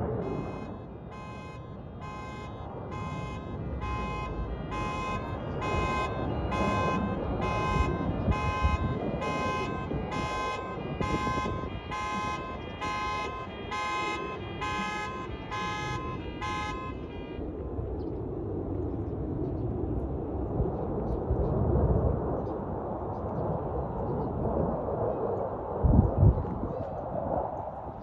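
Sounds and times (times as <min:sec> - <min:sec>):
distant jet engine rumble: 0:00.0 - 0:28.0
electronic alarm beeping: 0:00.2 - 0:17.4.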